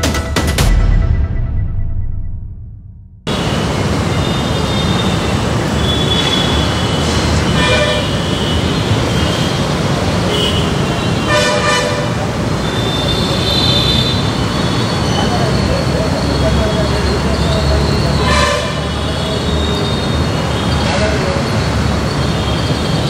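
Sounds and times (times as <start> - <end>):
street traffic: 3.2 - 23.0
vehicle horn: 4.1 - 9.6, 10.3 - 14.3, 18.1 - 19.9.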